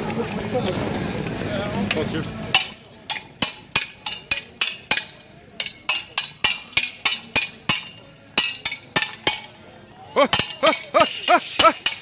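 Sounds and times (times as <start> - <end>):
swords and shields clashing: 2.5 - 9.6, 10.2 - 12.0.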